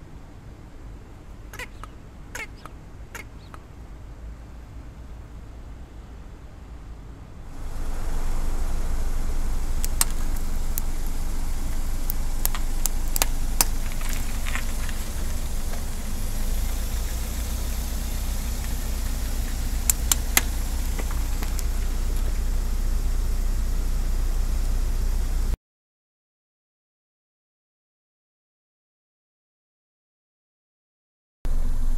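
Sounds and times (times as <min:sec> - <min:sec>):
car engine and tyre rumble: 0:00.0 - 0:25.6, 0:31.5 - 0:31.9
sharp clicks and crackles: 0:07.6 - 0:22.5.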